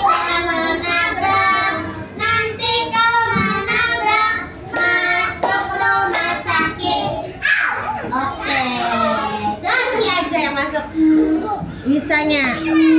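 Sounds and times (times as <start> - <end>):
children singing together: 0.0 - 8.0
children clapping hands: 4.7 - 7.1.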